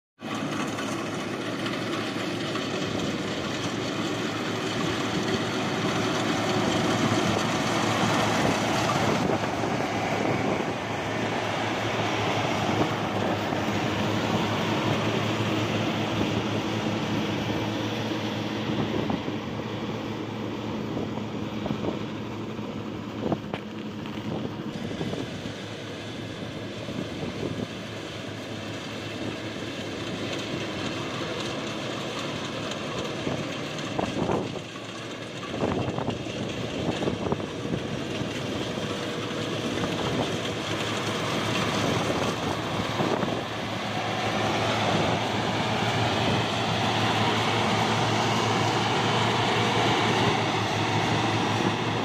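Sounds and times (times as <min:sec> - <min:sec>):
combine harvester running: 0:00.2 - 0:52.0.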